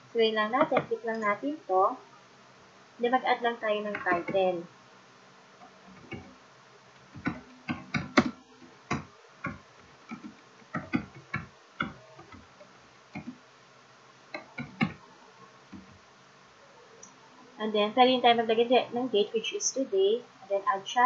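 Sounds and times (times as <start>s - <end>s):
keyboard typing clicks: 6.0s - 6.3s, 7.0s - 12.5s, 13.1s - 13.4s, 14.3s - 15.0s.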